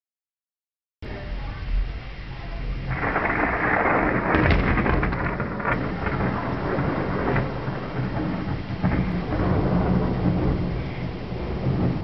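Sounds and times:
rain: 1.0 - 12.0
thunder rolling: 2.5 - 12.0.

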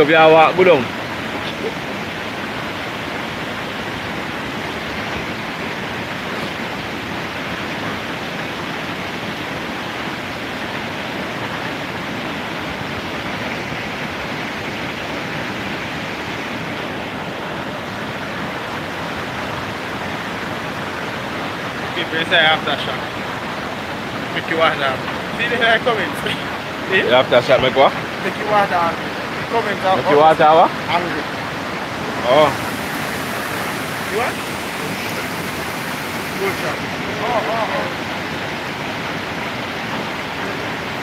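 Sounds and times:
river rushing over rocks: 0.0 - 41.0.

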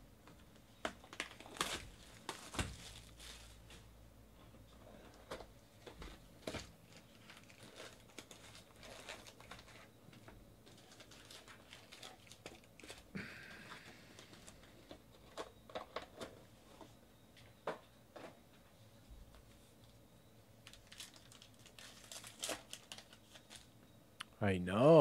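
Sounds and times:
card packs crinkling and tapping: 0.3 - 3.8, 5.0 - 16.4, 20.6 - 23.7.

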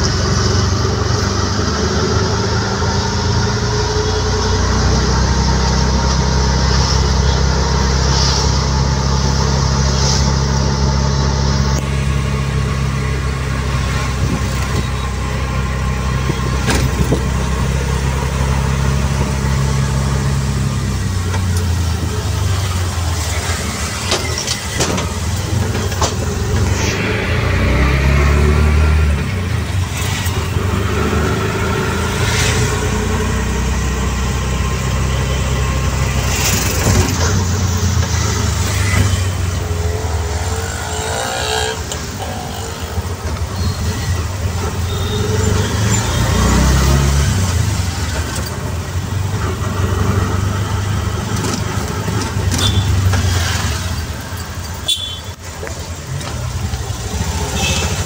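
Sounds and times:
road noise: 0.0 - 58.0
short high-pitched traffic sounds: 52.4 - 55.6, 57.3 - 58.0.

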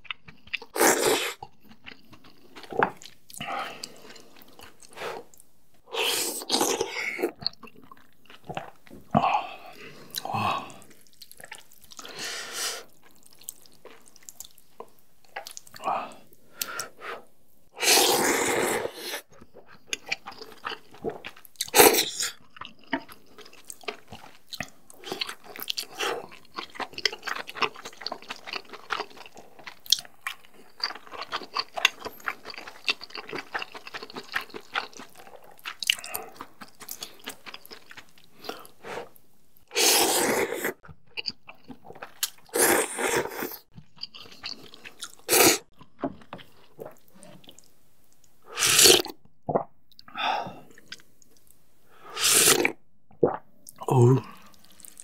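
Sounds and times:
noodles slurped: 17.8 - 19.3, 39.7 - 40.8, 42.0 - 43.7, 44.3 - 45.7, 52.1 - 53.4
wet chewing: 19.2 - 38.8.

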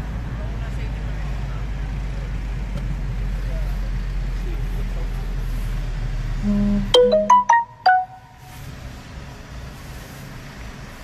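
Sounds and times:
faint car road noise: 0.0 - 11.0
ringing alert tone melody: 6.4 - 8.4.

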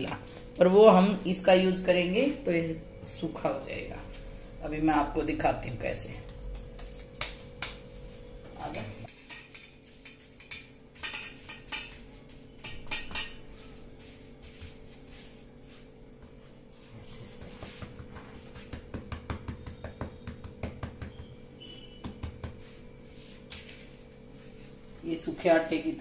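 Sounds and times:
soft pats on dough: 13.6 - 21.3.

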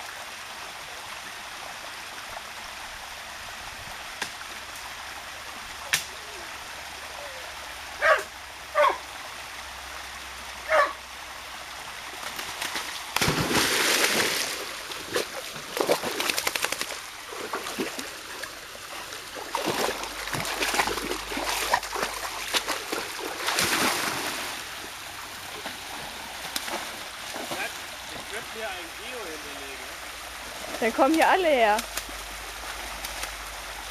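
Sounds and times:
flowing water rushing: 0.0 - 33.9
dog barking: 8.0 - 9.0, 10.7 - 11.0
dog splashing through water: 12.2 - 24.6.

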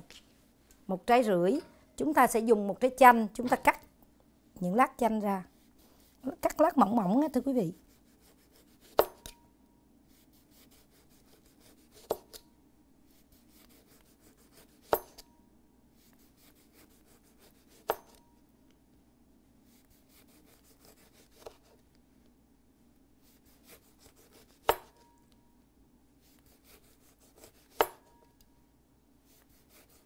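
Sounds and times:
knife sawing through lemon: 7.6 - 9.0, 10.1 - 12.3, 13.2 - 15.0, 16.0 - 17.9, 19.8 - 21.6, 23.2 - 24.7, 26.3 - 27.8, 29.3 - 30.0
knife tapping cutting board: 27.7 - 28.0.

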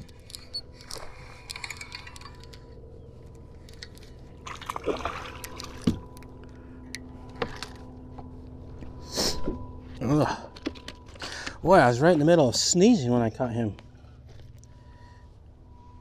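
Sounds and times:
faint steady hum: 0.0 - 16.0
water sloshing: 4.4 - 6.2.

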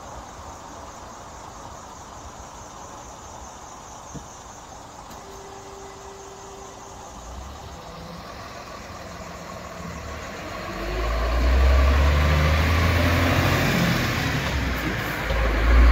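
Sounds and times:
diesel truck engine rumble: 4.9 - 15.9.

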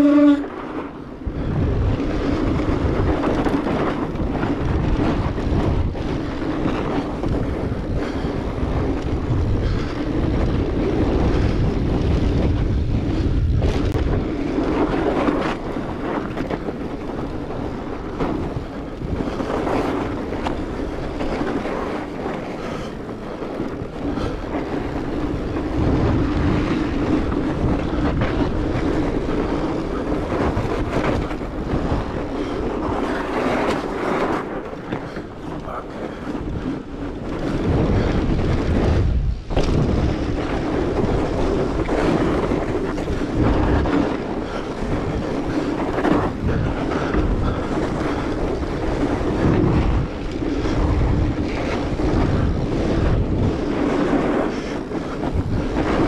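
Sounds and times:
bike tires rolling on snow: 0.0 - 56.0
wind buffeting microphone: 0.0 - 56.0.

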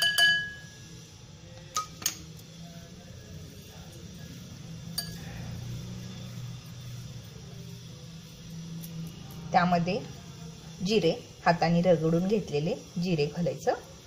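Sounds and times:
kitchenware clinking on glass bowl: 0.0 - 0.7, 5.0 - 5.3.

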